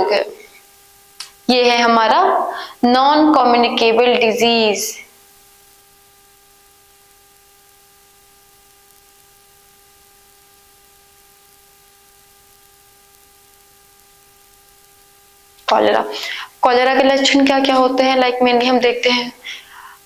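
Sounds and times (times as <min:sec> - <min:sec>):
electrical hum: 0:00.0 - 0:20.0
faint background hiss: 0:00.0 - 0:20.0.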